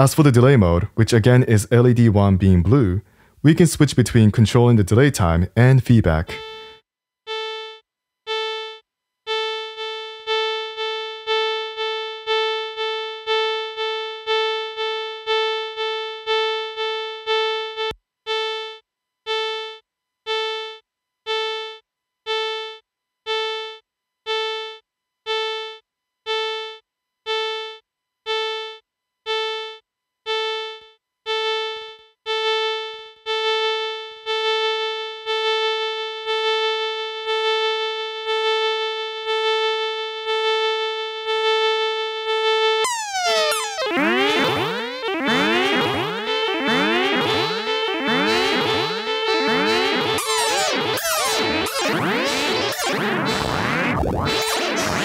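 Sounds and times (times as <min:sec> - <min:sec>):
synthesized tone with delay echoes: 0:42.9 - 0:55.0.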